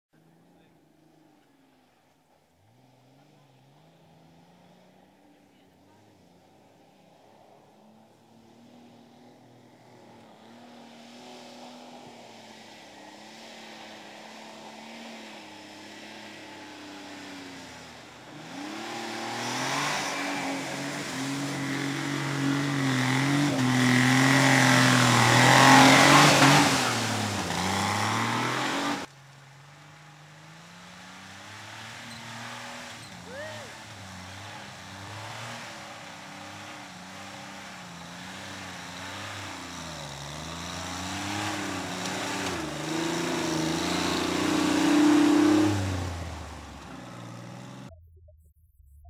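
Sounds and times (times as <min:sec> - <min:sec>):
off-road vehicle engine labouring: 0:00.0 - 0:47.9
heavy water splashing: 0:19.0 - 0:29.1.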